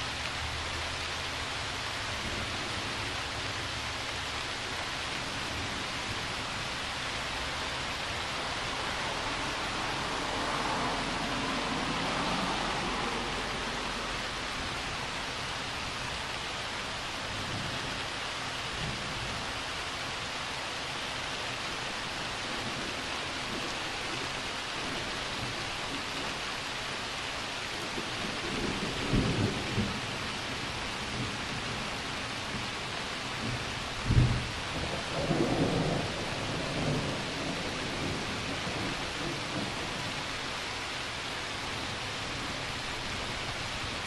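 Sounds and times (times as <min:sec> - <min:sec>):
steady rain: 0:00.0 - 0:44.0
thunder rumbling: 0:33.3 - 0:40.2.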